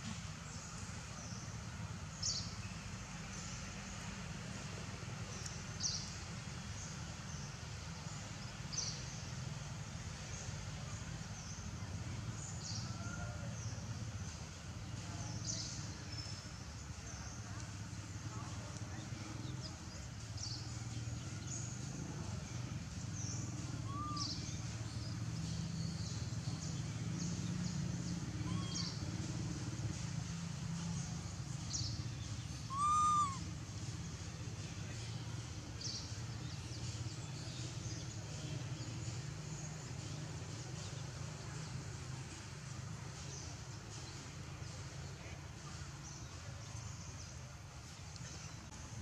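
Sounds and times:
monkey coo calls: 23.8 - 24.3, 28.4 - 29.0, 32.6 - 33.5.

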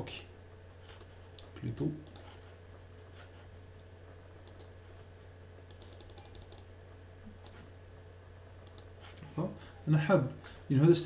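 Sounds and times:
low electrical hum: 0.0 - 11.0
computer keyboard clicks: 1.4 - 2.3, 4.4 - 4.7, 5.7 - 6.7, 8.6 - 8.9.

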